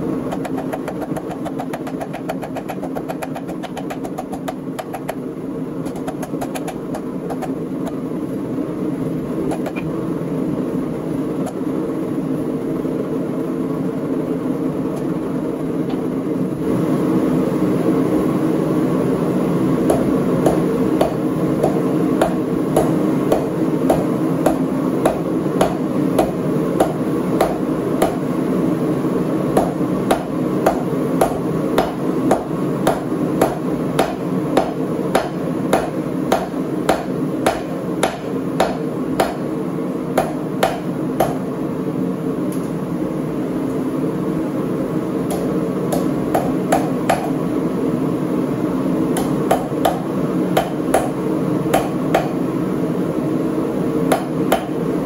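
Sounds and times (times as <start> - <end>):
steady hum: 0.0 - 55.0
hammer striking steel on anvil: 19.9 - 28.2, 29.6 - 39.5, 40.2 - 41.5, 45.3 - 47.4, 49.2 - 52.4, 54.1 - 54.8.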